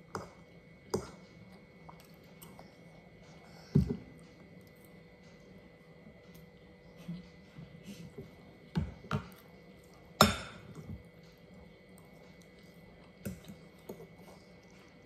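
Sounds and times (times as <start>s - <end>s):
faint steady hum: 0.0s - 15.0s
cutlery clinking on dishes: 10.2s - 10.8s.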